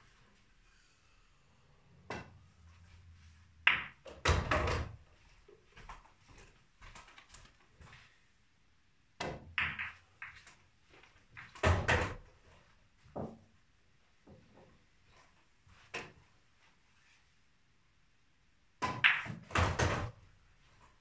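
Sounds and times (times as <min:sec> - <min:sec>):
snooker balls cracking together: 0:03.6 - 0:04.4, 0:09.2 - 0:12.0
ball dropping into pocket: 0:03.6 - 0:04.5.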